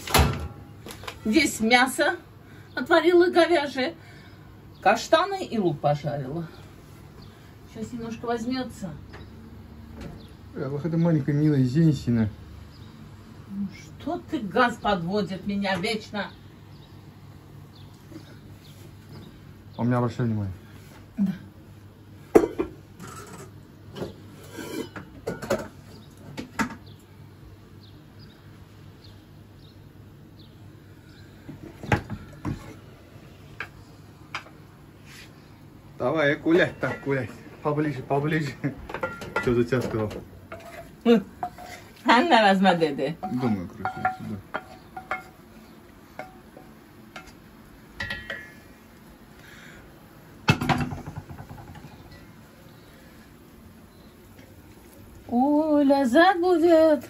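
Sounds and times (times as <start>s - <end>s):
cookware clatter: 22.4s - 25.8s, 36.7s - 37.3s, 38.8s - 41.9s, 43.2s - 45.4s, 48.0s - 48.6s
pots and pans clinking: 22.4s - 25.8s, 36.6s - 37.4s, 38.8s - 41.9s, 43.2s - 45.4s, 46.2s - 47.4s, 48.0s - 48.6s, 50.5s - 52.4s
wooden spoon knocking on pan: 43.8s - 45.4s, 50.5s - 52.0s.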